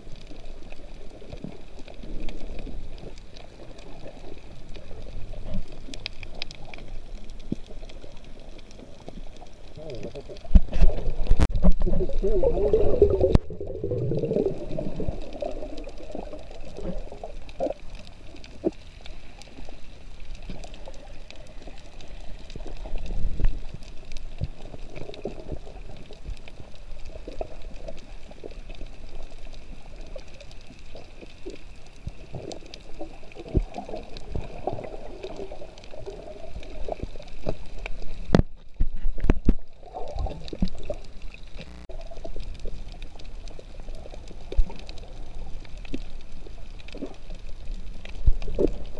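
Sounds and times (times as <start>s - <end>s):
sharp clicks and crackles: 0.0s - 48.9s
underwater sloshing and gurgling: 0.0s - 48.9s.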